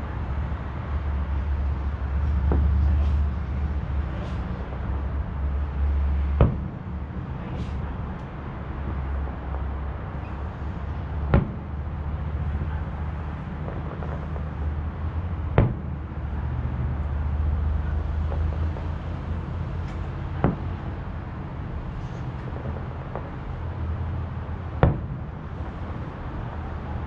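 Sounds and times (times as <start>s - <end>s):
distant firework booms: 6.2s - 7.8s, 11.2s - 12.8s, 15.4s - 16.4s, 24.8s - 25.8s.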